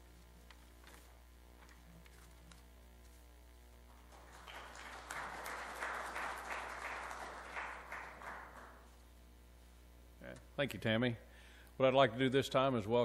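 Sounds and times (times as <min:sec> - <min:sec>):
faint room hum: 0:00.0 - 0:13.0
audience applauding: 0:03.9 - 0:08.9.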